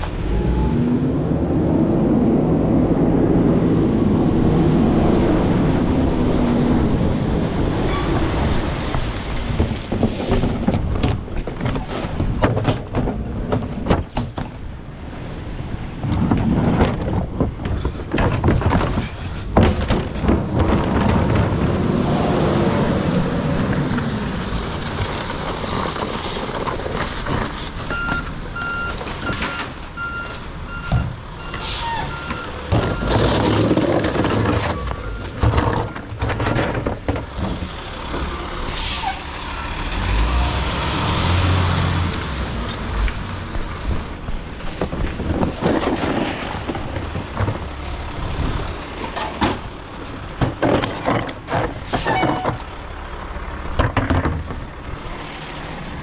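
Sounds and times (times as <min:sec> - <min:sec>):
reversing beeper: 0:00.2 - 0:01.2
metal clanks and knocks: 0:09.4 - 0:14.7, 0:32.7 - 0:37.8, 0:49.0 - 0:52.7, 0:53.7 - 0:54.7
air brakes hissing: 0:31.5 - 0:32.2, 0:38.7 - 0:39.4.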